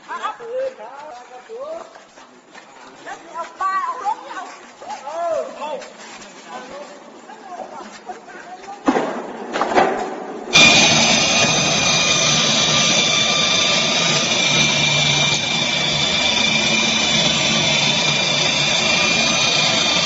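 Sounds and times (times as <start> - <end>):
seaming machine high whine: 10.5 - 20.0.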